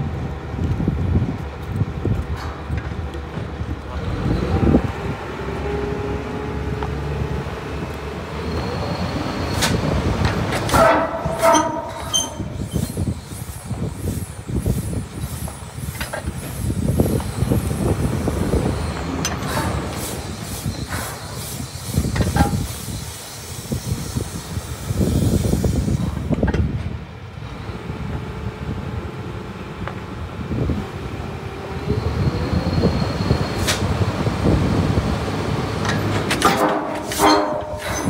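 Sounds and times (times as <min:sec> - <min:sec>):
diesel engine rumbling: 0:00.0 - 0:38.0
sharp metal clanks: 0:10.6 - 0:13.0, 0:36.0 - 0:38.0.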